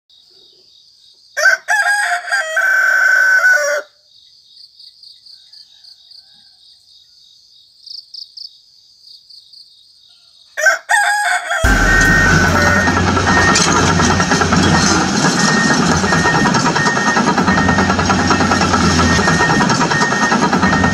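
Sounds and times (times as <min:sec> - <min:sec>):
rooster crowing: 0:01.4 - 0:04.0, 0:05.3 - 0:06.9, 0:10.2 - 0:13.0
loud mechanical drone: 0:11.6 - 0:20.9.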